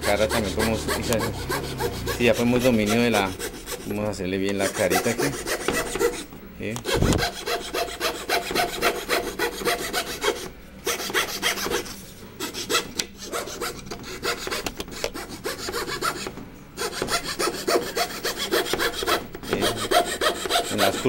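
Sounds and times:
fretsaw cutting wood: 0.0 - 4.0, 16.8 - 21.0.

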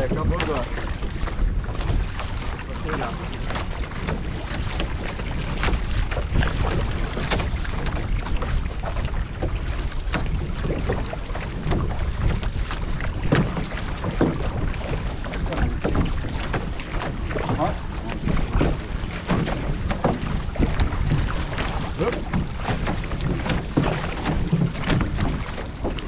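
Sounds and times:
paddle strokes splashing: 0.0 - 26.0
water rushing along hull: 0.0 - 26.0
wind rumbling on microphone: 0.0 - 26.0.

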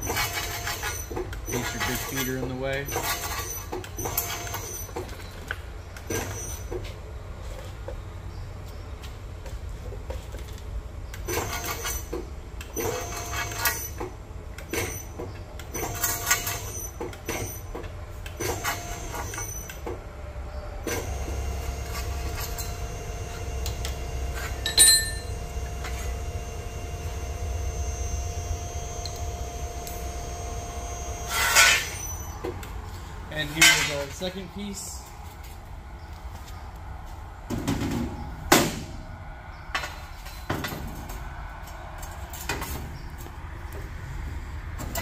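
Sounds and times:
tube bender motor hum: 20.8 - 32.6.

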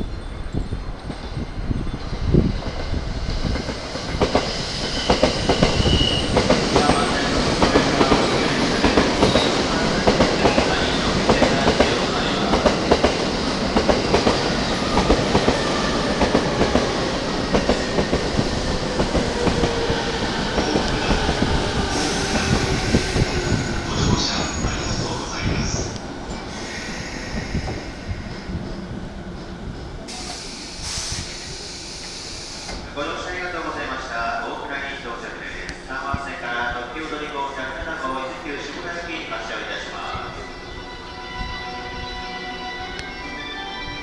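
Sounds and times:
electric train pulling in: 0.0 - 44.0.

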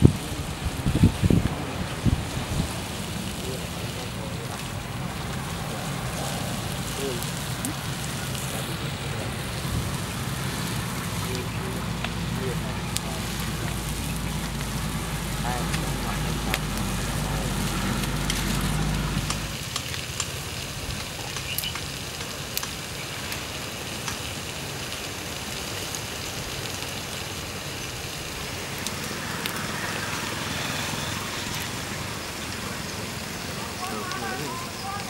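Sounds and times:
low rumble: 0.0 - 19.7
fish sizzling on hot stone: 0.0 - 35.0
wood fire crackling: 0.0 - 35.0.

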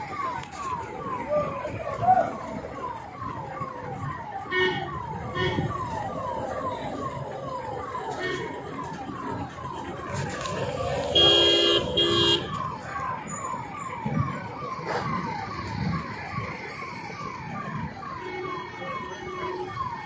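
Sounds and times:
emergency siren sweeping: 0.0 - 20.0
vehicle horn honking: 11.2 - 12.4.

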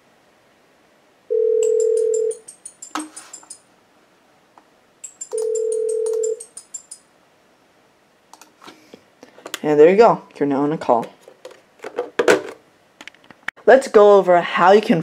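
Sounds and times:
high-pitched phone ringtone: 1.3 - 2.5, 5.1 - 7.0
phone ringback tone: 1.3 - 2.5, 5.1 - 6.6.

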